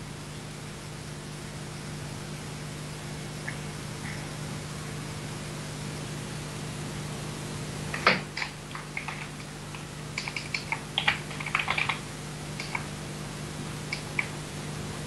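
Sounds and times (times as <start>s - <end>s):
low electrical hum: 0.0s - 15.0s
keyboard key clicks: 8.0s - 9.4s, 10.2s - 12.0s, 12.6s - 12.9s.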